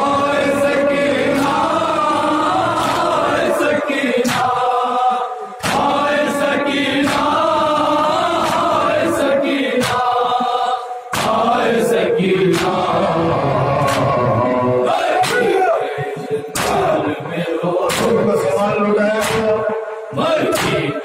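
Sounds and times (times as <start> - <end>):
men chanting in chorus: 0.0 - 21.0.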